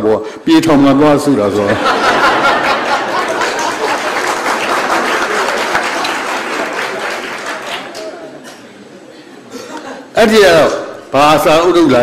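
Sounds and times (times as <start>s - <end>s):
audience applauding: 1.9s - 8.4s.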